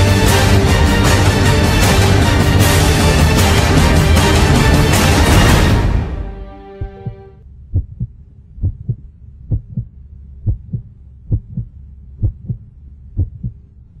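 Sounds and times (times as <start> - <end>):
music: 0.0 - 7.4
heartbeat double thumps: 6.8 - 13.6
faint low hum: 7.4 - 14.0.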